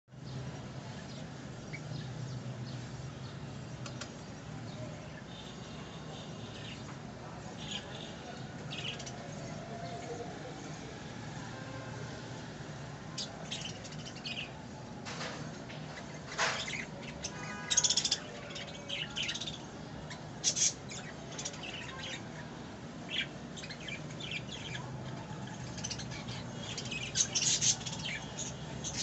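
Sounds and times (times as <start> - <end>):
budgerigars chirping: 15.9 - 22.2.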